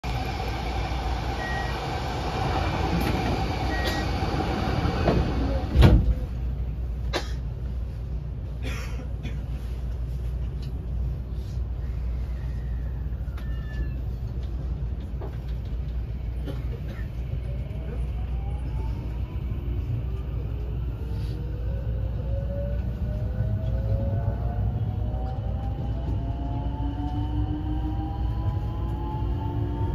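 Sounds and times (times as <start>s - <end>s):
train inverter whine: 0.0s - 8.6s, 9.8s - 29.9s
train interior low rumble: 0.0s - 29.9s
train doors closing thump: 4.9s - 6.3s.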